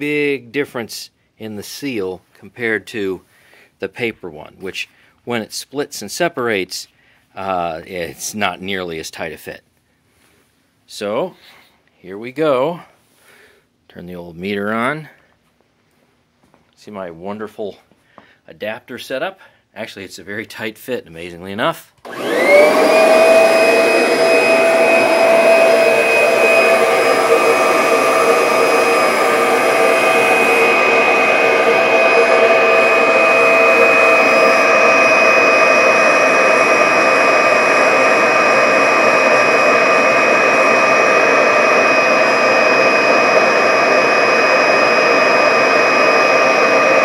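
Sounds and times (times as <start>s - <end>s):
vacuum cleaner motor whining: 22.0s - 47.0s
rush of air: 22.8s - 47.0s.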